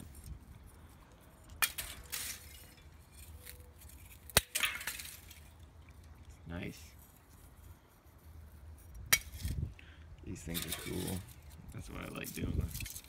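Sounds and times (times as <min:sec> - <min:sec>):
charcoal breaking with glassy clinks: 0:01.5 - 0:05.6.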